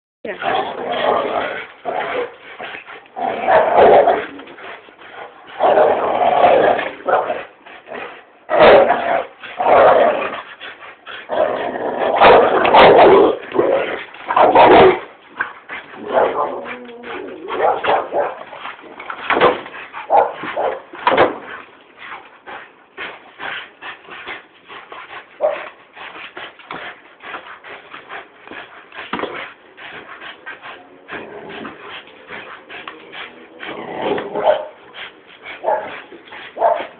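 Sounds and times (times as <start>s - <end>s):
dogs whining and yipping: 16.1s - 17.8s
dogs barking: 20.1s - 20.9s, 34.3s - 34.8s, 35.6s - 36.0s, 36.6s - 36.9s.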